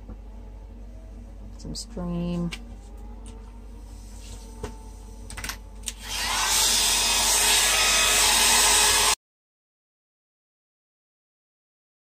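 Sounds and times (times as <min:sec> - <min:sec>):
hair dryer blowing: 0:06.0 - 0:09.2.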